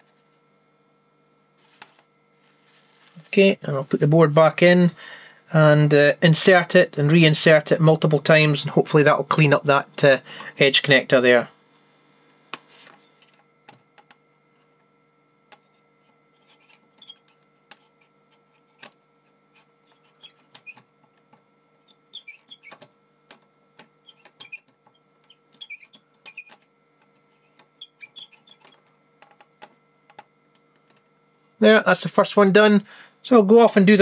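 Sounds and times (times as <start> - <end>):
card edge scraping contacts: 15.5 - 21.2, 23.7 - 31.0.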